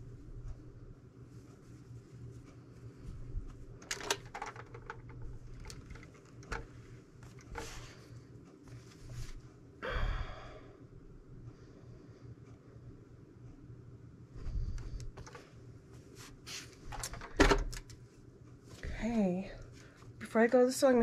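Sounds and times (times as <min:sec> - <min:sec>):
faint steady hum: 0:00.0 - 0:21.0
iron and fabric clicks: 0:03.4 - 0:08.0.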